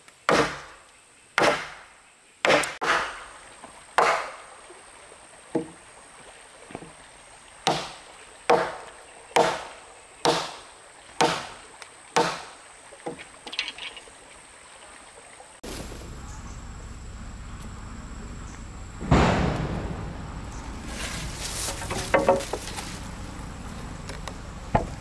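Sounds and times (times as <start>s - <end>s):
heavy strikes on wood: 7.6s - 8.8s, 9.4s - 10.6s, 11.2s - 11.5s, 12.2s - 12.5s, 19.0s - 20.2s, 21.7s - 22.8s, 24.7s - 25.0s
steady low noise: 15.6s - 25.0s
light knocks and clatter: 20.9s - 23.0s.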